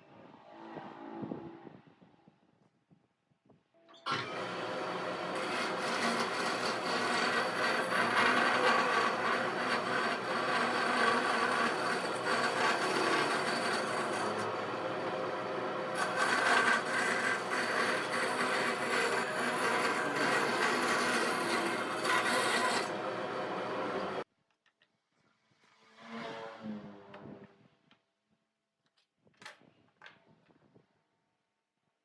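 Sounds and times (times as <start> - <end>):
bandsaw motor hum: 4.1 - 24.2
saw blade rasping through wood: 4.1 - 24.2.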